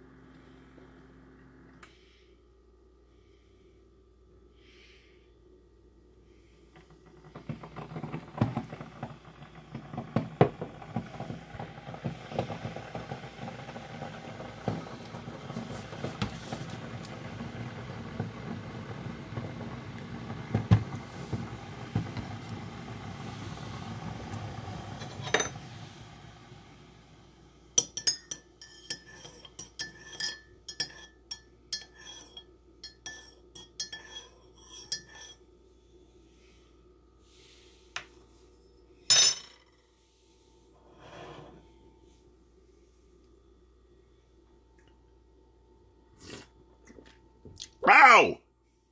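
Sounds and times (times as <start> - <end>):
coffee brewer running: 6.2 - 39.0
spoon clinking against mug: 27.8 - 35.3.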